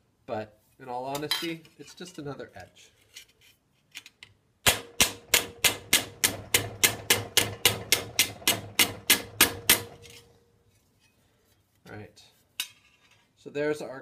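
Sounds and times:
mallet striking steel sheet: 4.7 - 10.0.

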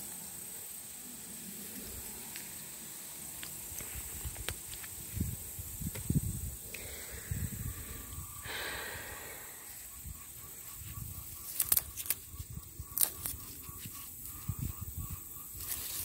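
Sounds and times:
plants rustling: 1.7 - 6.1, 10.6 - 14.6, 15.5 - 16.0
bean pods snapping: 11.3 - 14.5.

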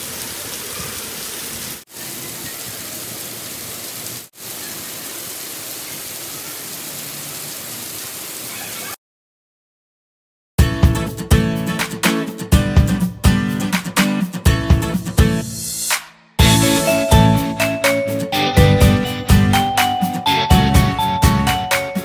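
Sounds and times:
heavy rain on concrete: 0.0 - 9.0.

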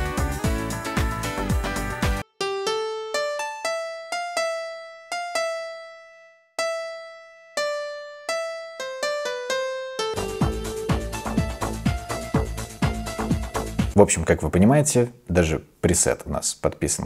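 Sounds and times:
electric piano notes: 2.2 - 13.6.

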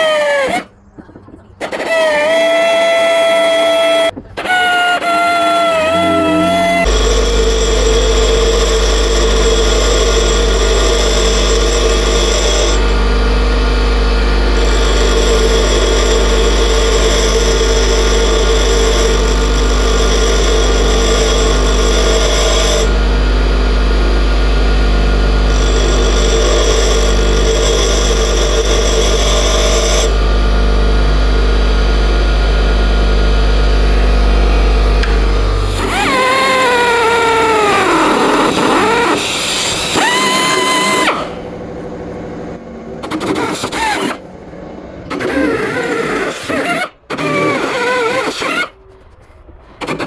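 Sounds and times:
bench grinder motor hum: 2.6 - 42.9
drill bit grinding hiss: 5.0 - 13.4, 14.3 - 23.2, 24.2 - 30.3, 35.7 - 41.3.

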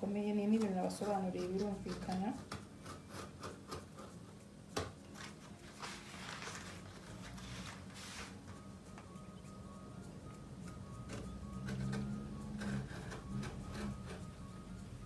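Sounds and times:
paper rustling: 5.2 - 8.5.

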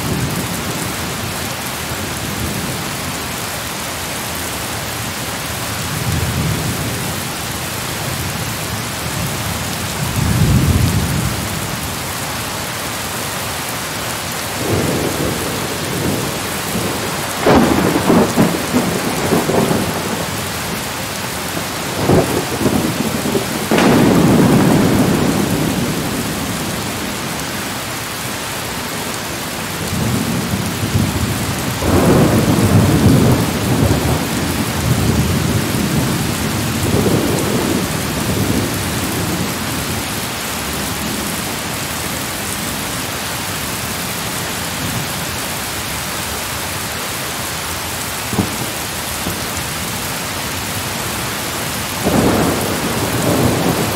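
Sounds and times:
steady rain: 0.0 - 53.9
thunder rumbling: 14.6 - 27.8, 28.7 - 40.2, 48.2 - 50.0, 50.8 - 53.9
sharp thunder crack: 21.9 - 27.1.

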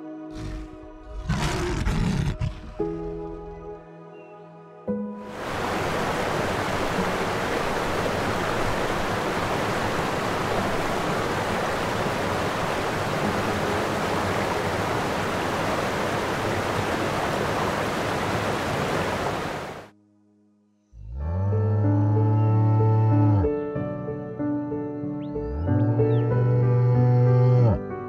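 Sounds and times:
rushing water: 5.2 - 19.9.

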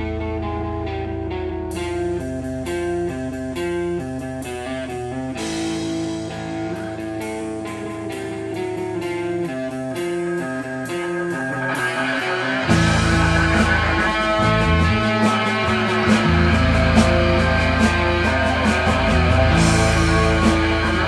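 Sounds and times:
electric guitar melody: 0.0 - 21.0
low drone: 11.8 - 21.0.

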